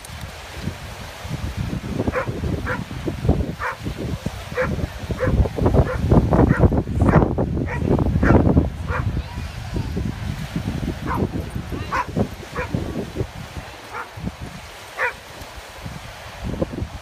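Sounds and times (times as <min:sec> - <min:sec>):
wind buffeting microphone: 0:00.0 - 0:17.0
dog barking: 0:02.1 - 0:02.8, 0:03.6 - 0:03.8, 0:04.5 - 0:09.1, 0:11.0 - 0:11.3, 0:11.9 - 0:12.8, 0:13.9 - 0:14.1, 0:15.0 - 0:15.2.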